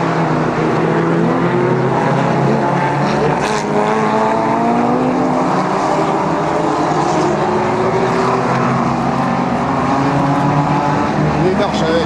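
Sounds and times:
racing car engines accelerating: 0:00.0 - 0:12.0.

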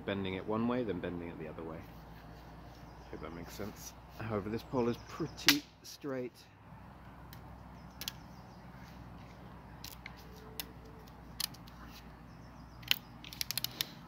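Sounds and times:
wood fibres crackling and snapping: 0:07.2 - 0:08.2, 0:09.2 - 0:11.9, 0:12.8 - 0:14.0
quick run of clicks: 0:12.8 - 0:14.0.

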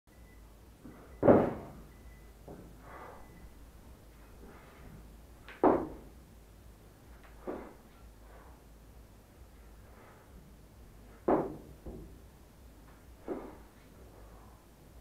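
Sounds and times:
sounds of effort and movement: 0:00.8 - 0:06.1, 0:07.1 - 0:08.8, 0:09.6 - 0:12.2, 0:12.9 - 0:15.0.

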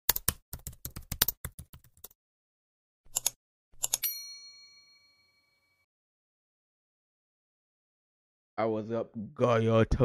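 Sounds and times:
keyboard typing clicks: 0:00.1 - 0:02.1, 0:03.1 - 0:04.1
bright bell ding: 0:04.0 - 0:05.8.

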